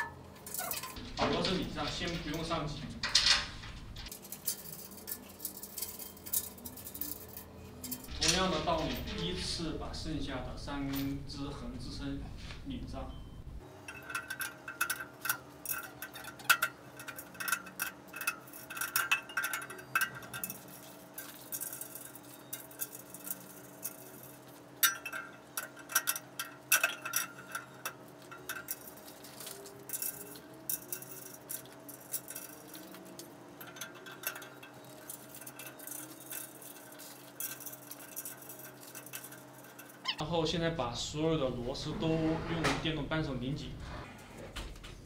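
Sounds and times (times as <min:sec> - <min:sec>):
metal clinks and taps: 0:13.8 - 0:40.2.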